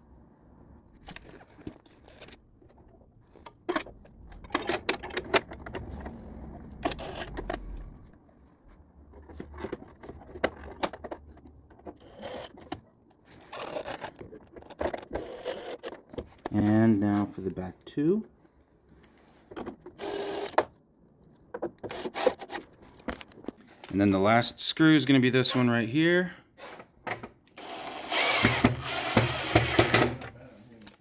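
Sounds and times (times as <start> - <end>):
clicks and scrapes of screws: 1.1 - 2.4, 13.4 - 16.0
cordless driver running slowly: 27.6 - 29.7.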